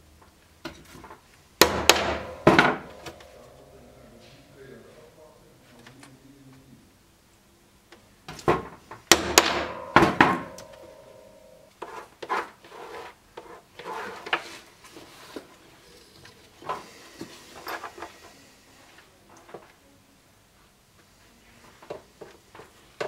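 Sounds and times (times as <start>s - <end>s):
tools tapping and scraping: 0.6s - 4.4s, 8.3s - 15.5s
hammer striking metal tool: 1.6s - 3.7s, 9.1s - 11.8s
metallic ring: 2.2s - 4.5s, 9.5s - 11.8s.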